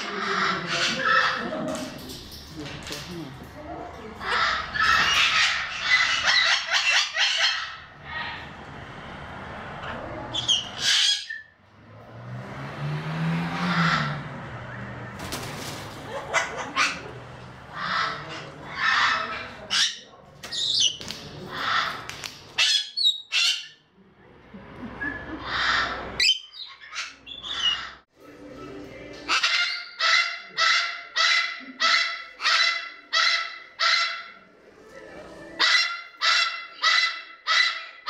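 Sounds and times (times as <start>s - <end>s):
parrots squawking and screeching: 0.0s - 2.5s, 4.1s - 8.6s, 9.8s - 11.6s, 13.4s - 14.4s, 15.5s - 23.8s, 25.0s - 28.1s, 29.2s - 34.5s, 35.6s - 38.0s.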